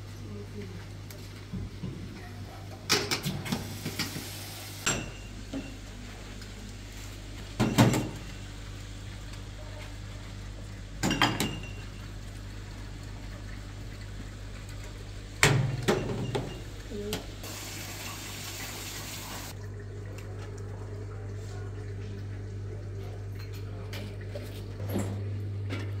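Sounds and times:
dishes clattering at a sink: 2.8 - 4.2, 4.8 - 5.9, 7.5 - 8.4, 11.0 - 12.2, 15.4 - 17.3.

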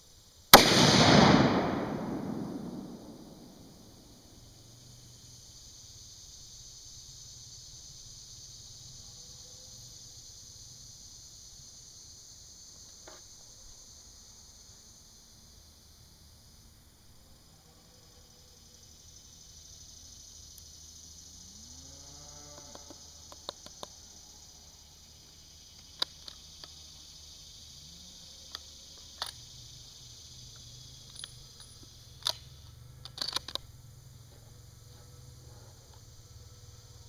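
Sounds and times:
insects droning: 0.0 - 37.0
rifle handling clicks and knocks: 33.0 - 33.7.

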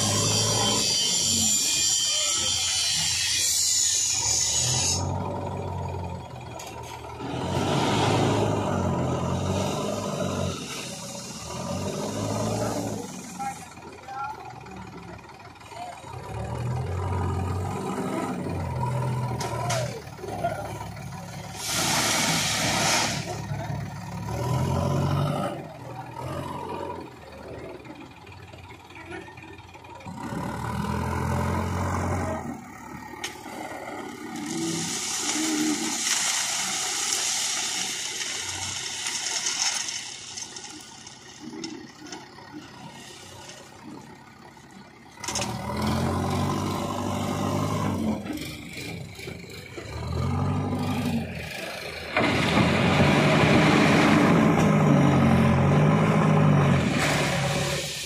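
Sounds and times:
diesel engine revving: 0.0 - 58.0
stones pouring into trolley: 34.3 - 41.8.

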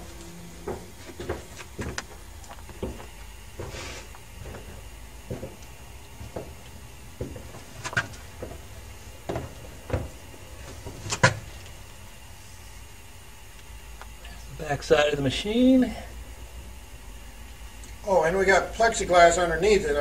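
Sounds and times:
footsteps on wooden floor: 0.0 - 11.6
faint steady hum: 0.0 - 20.0.

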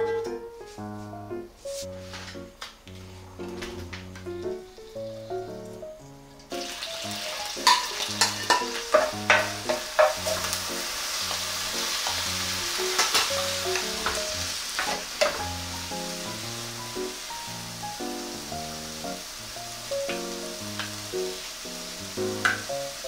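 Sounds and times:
food sizzling in hot oil: 4.4 - 23.0
stirring taps: 6.4 - 15.6.

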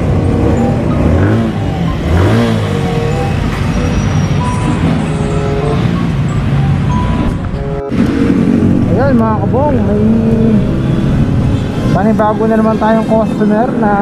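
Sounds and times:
small motorcycle engine revving: 0.4 - 3.5.

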